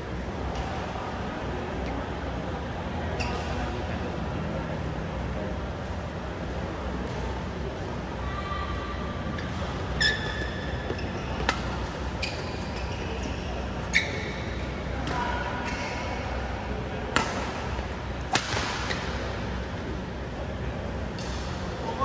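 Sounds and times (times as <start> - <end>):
shoe squeaks on court: 10.0 - 11.5, 12.1 - 14.5
racket striking shuttlecock: 17.1 - 17.5, 18.3 - 19.0.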